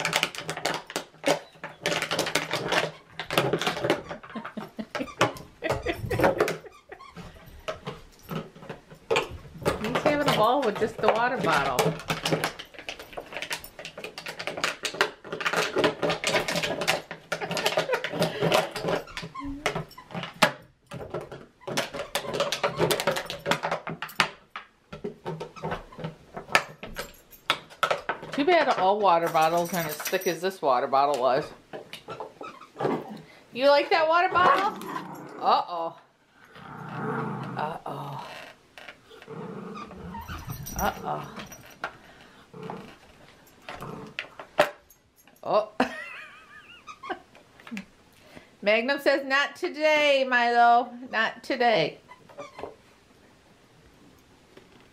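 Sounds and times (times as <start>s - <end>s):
dog chewing plastic bottle: 0.0s - 28.6s.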